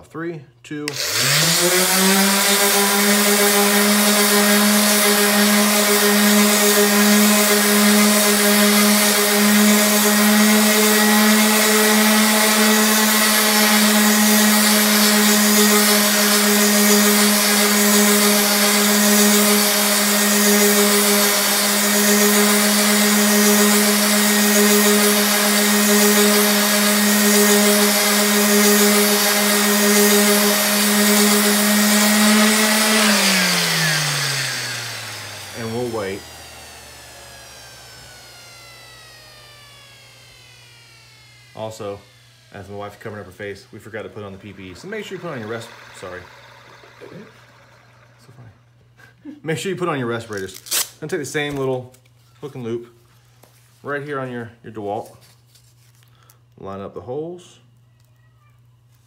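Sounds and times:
sander motor humming: 0.9s - 49.1s
person talking: 35.5s - 36.4s, 41.6s - 46.4s.

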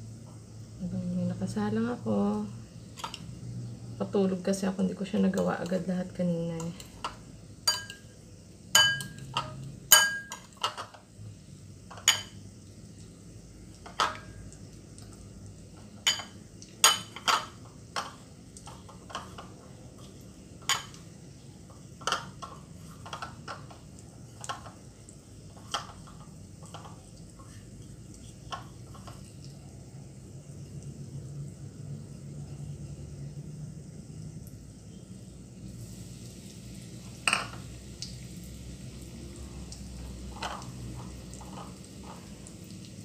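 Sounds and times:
knife and dishes clinking: 6.6s - 8.0s, 8.8s - 11.0s.

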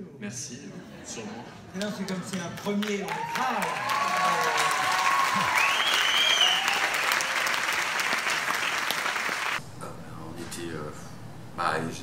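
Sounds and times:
audience clapping: 1.8s - 9.6s
voices cheering: 2.6s - 9.6s.

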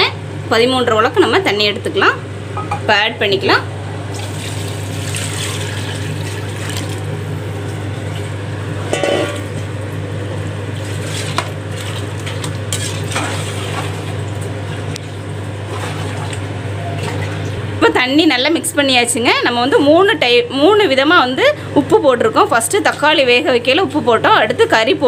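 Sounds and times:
steady low hum: 0.0s - 25.0s
water pouring into a pot: 4.1s - 7.1s
ladle clinking against pot: 8.9s - 9.4s
ladle stirring and scraping pot: 8.9s - 9.5s.

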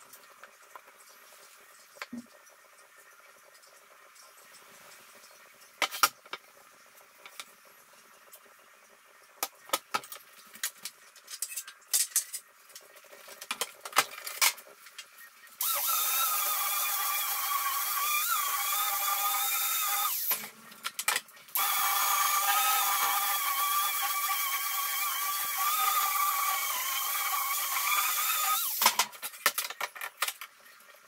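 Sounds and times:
electric sander whining: 21.6s - 28.5s.

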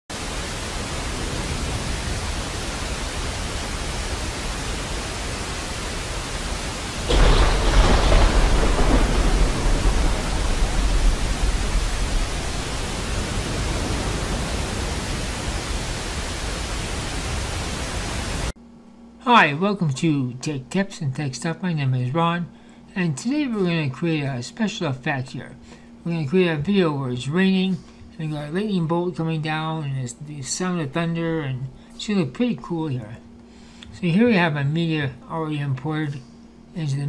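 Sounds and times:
rainfall hiss: 0.1s - 18.6s
thunder crack rumbling: 6.9s - 17.6s.

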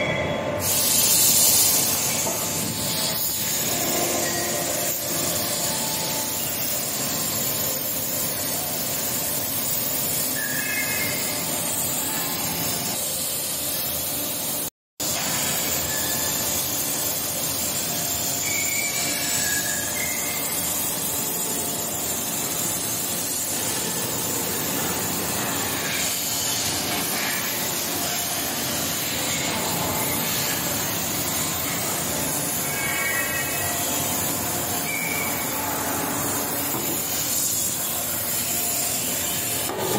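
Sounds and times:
machinery hiss and rumble: 0.4s - 39.9s
short high squeals: 10.0s - 12.6s, 18.0s - 21.6s, 31.3s - 36.7s.

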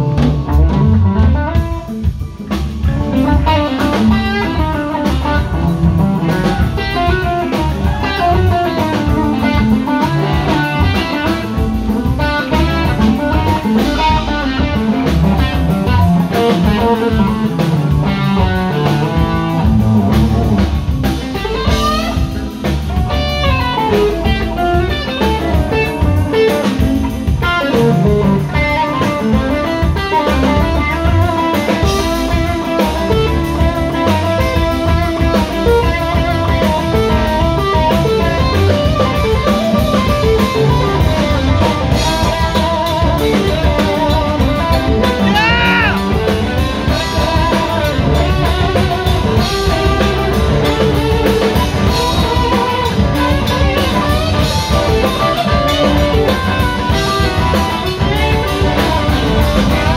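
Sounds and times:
drum kit: 0.0s - 59.9s
electric bass: 0.0s - 59.9s
electric guitars: 0.0s - 59.9s
sliding guitar line: 0.0s - 59.9s.

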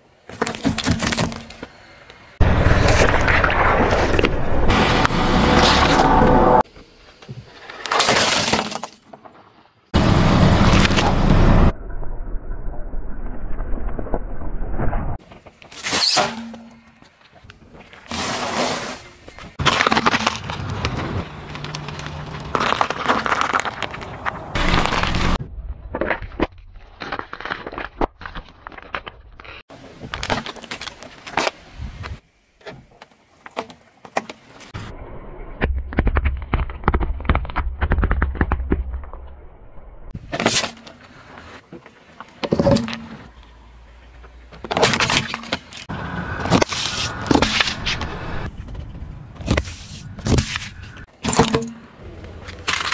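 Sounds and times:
car tyre crushing objects: 0.3s - 1.7s, 17.7s - 31.6s, 35.6s - 39.4s, 40.1s - 52.9s
low rumble: 10.0s - 15.2s
crackers crunching under tyre: 17.0s - 31.6s, 35.7s - 39.4s, 40.2s - 52.9s
tyre crushing objects on asphalt: 17.8s - 25.4s, 35.6s - 39.1s.

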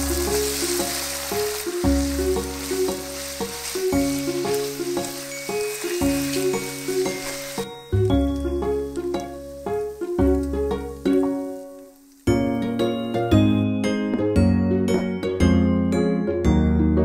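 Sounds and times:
food sizzling in a pan: 0.0s - 13.5s
background music with steady beat: 12.3s - 17.0s.

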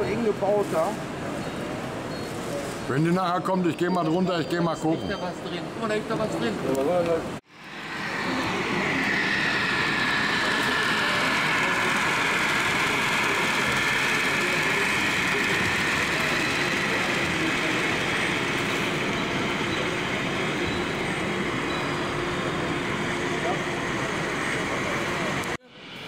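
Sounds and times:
model train rolling whirr: 7.5s - 26.0s.

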